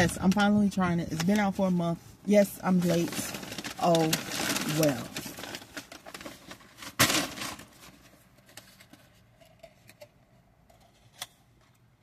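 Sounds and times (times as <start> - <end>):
food packaging crackling and rustling: 2.3 - 11.8.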